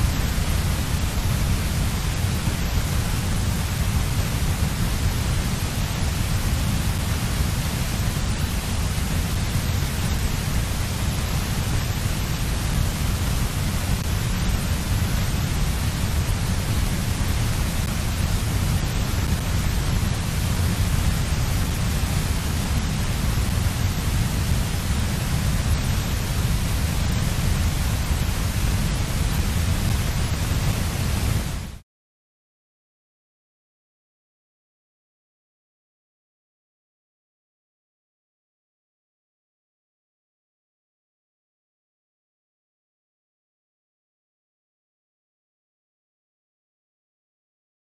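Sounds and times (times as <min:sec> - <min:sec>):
wind noise on microphone: 0:00.0 - 0:31.8.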